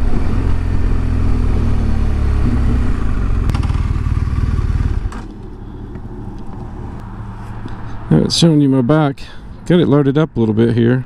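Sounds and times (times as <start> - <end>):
motorcycle engine running: 0.0 - 7.7.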